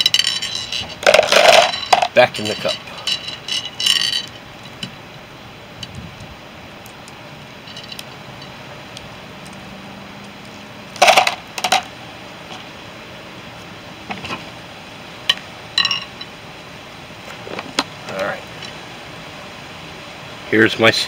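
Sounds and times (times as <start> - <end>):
seeds clattering into plastic cup: 0.0 - 2.8.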